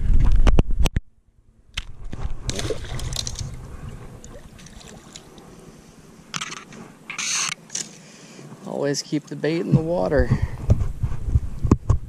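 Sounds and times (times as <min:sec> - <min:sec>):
river water sloshing: 0:02.1 - 0:08.0
light splashes: 0:02.4 - 0:05.6.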